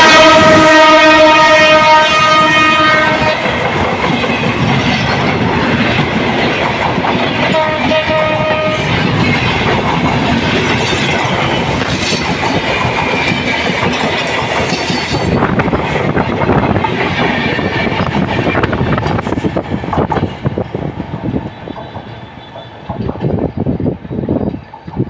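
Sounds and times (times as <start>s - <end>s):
train horn: 0.0s - 3.6s, 7.5s - 9.0s
train wheels clattering on rails: 0.0s - 25.0s.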